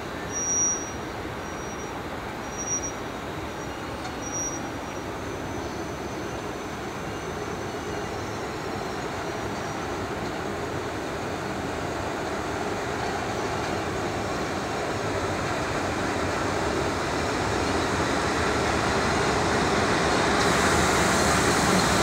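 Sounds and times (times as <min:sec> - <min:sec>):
freight train rumbling: 0:00.0 - 0:22.0
high-pitched wheel squeals: 0:00.1 - 0:10.0.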